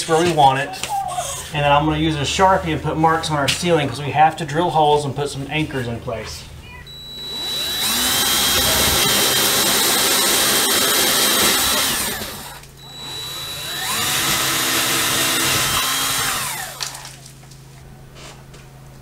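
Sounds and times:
cordless drill whining: 0:06.8 - 0:17.2.

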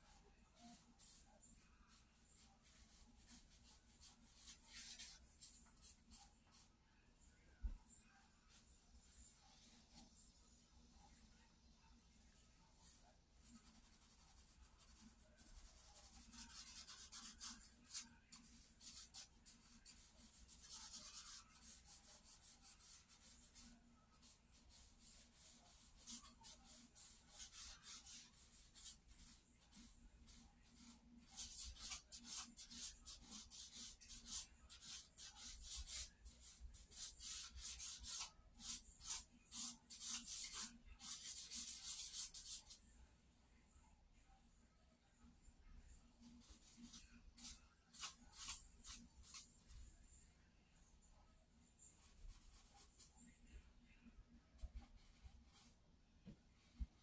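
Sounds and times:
charcoal scratching on paper: 0:00.0 - 0:06.7, 0:13.4 - 0:42.8, 0:46.2 - 0:49.6, 0:51.8 - 0:53.3.

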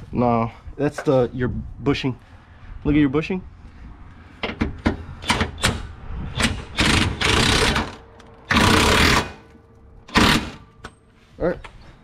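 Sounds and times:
impact wrench bursts: 0:04.5 - 0:09.5, 0:10.1 - 0:10.8.

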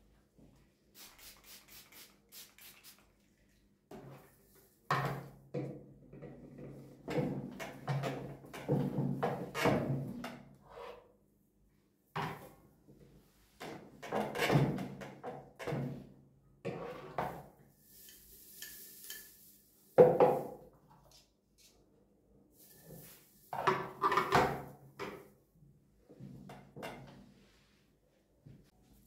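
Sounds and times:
trigger spray bottle pumping: 0:01.0 - 0:03.0.

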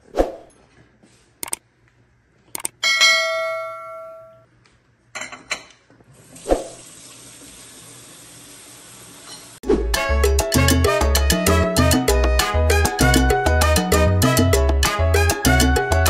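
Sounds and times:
bell-like ding: 0:02.8 - 0:04.4
faucet running into steel sink: 0:06.1 - 0:09.6.

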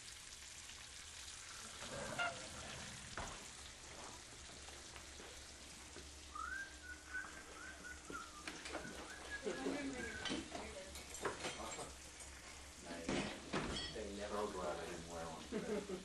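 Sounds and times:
bacon sizzling on griddle: 0:00.0 - 0:16.0
faint whistle-like tone: 0:06.3 - 0:10.3.

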